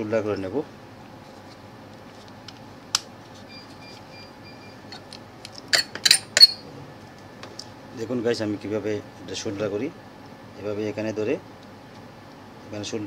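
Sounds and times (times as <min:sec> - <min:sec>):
tools clicking and clattering: 0:05.0 - 0:06.6.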